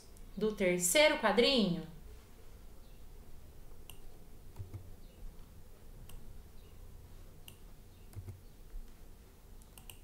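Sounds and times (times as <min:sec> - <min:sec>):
low steady hum: 0:00.0 - 0:10.0
computer mouse clicks: 0:03.8 - 0:04.9, 0:06.0 - 0:06.2, 0:07.4 - 0:08.5, 0:09.6 - 0:10.0.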